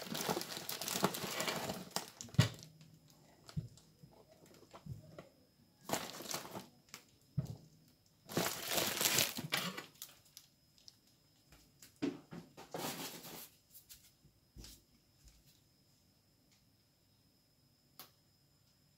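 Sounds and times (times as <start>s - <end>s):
plastic bag crinkling: 0.0s - 2.7s, 5.8s - 6.7s, 8.3s - 11.0s.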